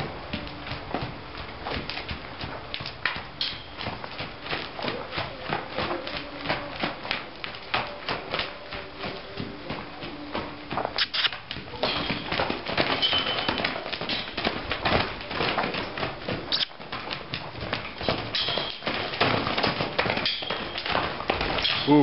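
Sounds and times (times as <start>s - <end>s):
horse hoofbeats on dirt: 0.0s - 22.0s.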